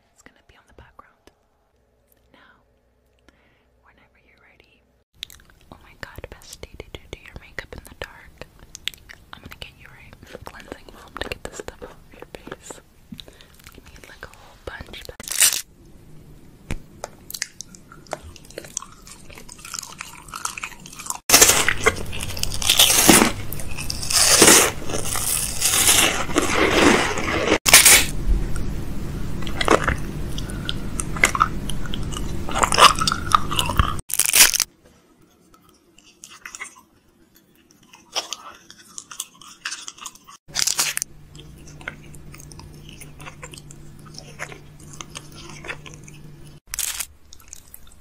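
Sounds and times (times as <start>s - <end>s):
chewing crunchy snack: 5.2s - 5.7s, 17.2s - 28.1s, 29.4s - 34.7s, 35.5s - 48.0s.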